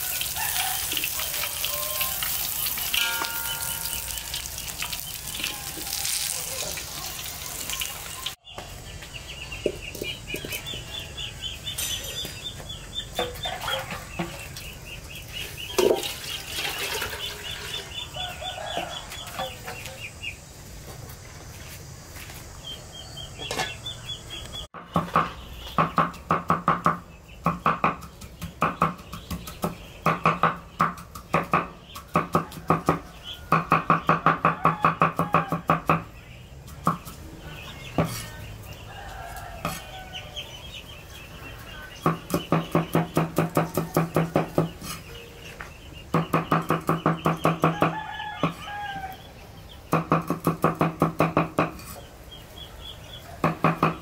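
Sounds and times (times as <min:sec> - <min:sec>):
rooster crowing: 0:00.0 - 0:07.9, 0:18.0 - 0:19.8, 0:32.4 - 0:35.8, 0:38.8 - 0:40.6, 0:47.6 - 0:49.3
chickens clucking: 0:00.0 - 0:21.2.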